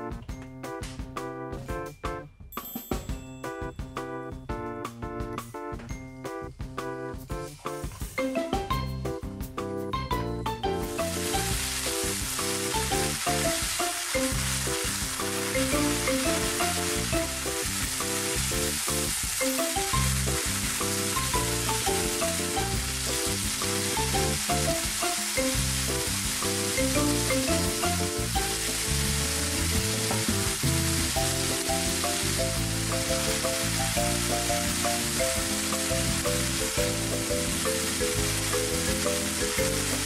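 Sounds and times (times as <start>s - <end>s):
light background music: 0.0s - 40.0s
noodles sizzling in a frying pan: 10.8s - 40.0s.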